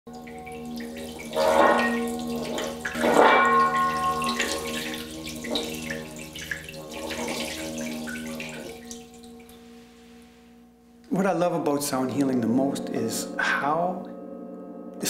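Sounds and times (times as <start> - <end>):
water splashing in bowl: 0.1 - 9.7
singing bowl ringing tone: 0.1 - 10.9, 12.0 - 15.0.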